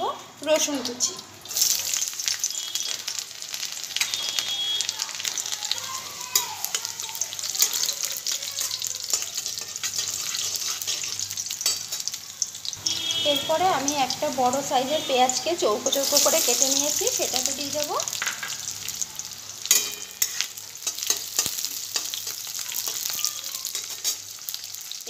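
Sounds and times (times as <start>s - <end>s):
garlic sizzling in hot oil: 0.0s - 25.0s
spatula scraping metal pan: 8.6s - 12.2s, 19.7s - 24.4s.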